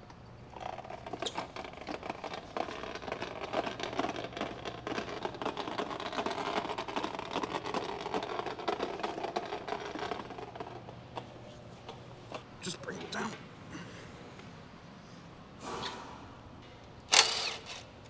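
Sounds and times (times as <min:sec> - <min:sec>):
caster wheels rattling on concrete: 0:00.5 - 0:11.3.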